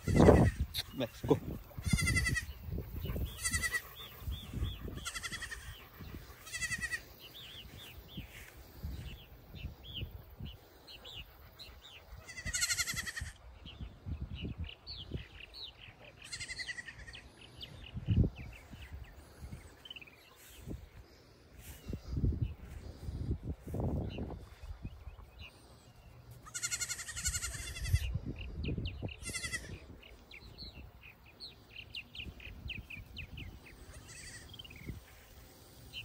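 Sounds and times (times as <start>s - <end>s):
baby goats bleating: 0.0s - 0.7s, 1.8s - 4.0s, 4.8s - 7.1s, 12.2s - 13.4s, 16.2s - 17.2s, 26.4s - 28.1s, 29.2s - 29.8s, 33.8s - 34.6s
small birds chirping: 0.0s - 36.0s.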